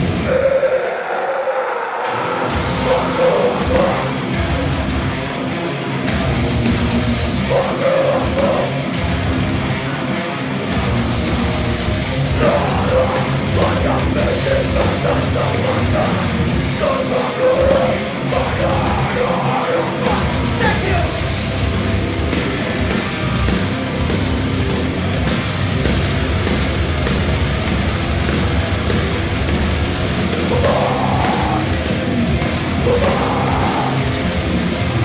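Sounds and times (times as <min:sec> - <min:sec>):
harsh shouted vocals: 0:00.0 - 0:04.8, 0:07.3 - 0:09.1, 0:12.2 - 0:21.5, 0:29.9 - 0:35.0
distorted electric guitars: 0:00.0 - 0:35.0
pounding drums: 0:02.1 - 0:09.9, 0:10.7 - 0:35.0.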